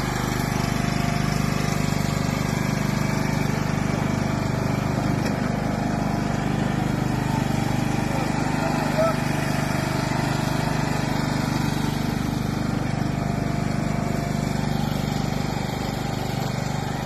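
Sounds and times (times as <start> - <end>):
lawn tractor engine humming: 0.0 - 17.0.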